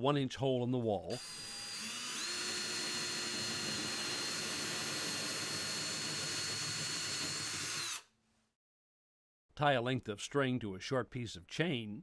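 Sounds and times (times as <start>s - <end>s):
cordless drill whining: 1.1s - 8.1s.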